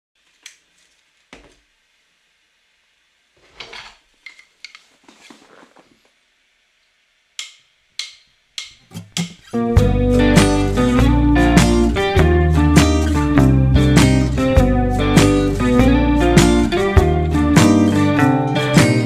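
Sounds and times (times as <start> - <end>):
taps on steel plate: 7.4 - 9.4.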